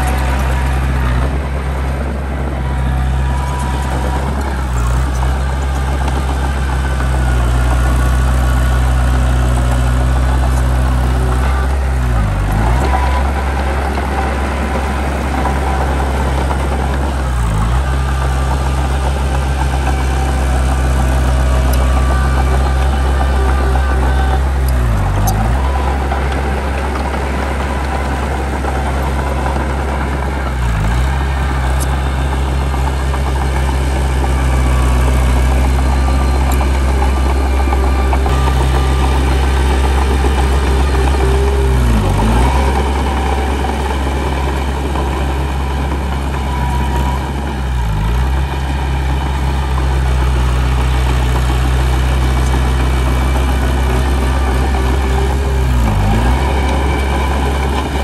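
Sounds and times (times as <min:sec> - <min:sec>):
heavy diesel machinery droning: 0:00.0 - 0:58.0.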